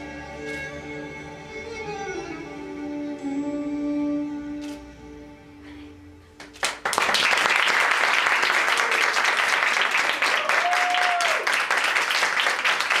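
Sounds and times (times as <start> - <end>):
audience applauding: 6.4 - 13.0.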